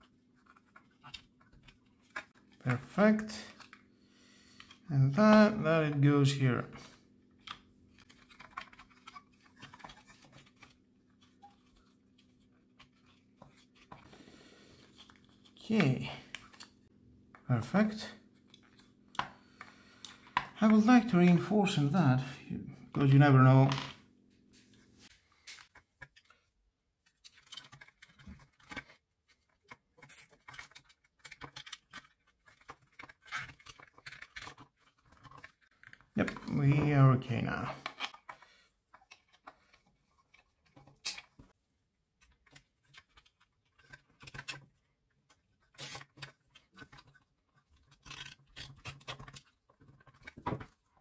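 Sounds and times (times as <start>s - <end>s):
plastic parts clicking: 7.4s - 14.0s, 27.0s - 36.9s, 37.8s - 41.5s, 42.2s - 51.0s.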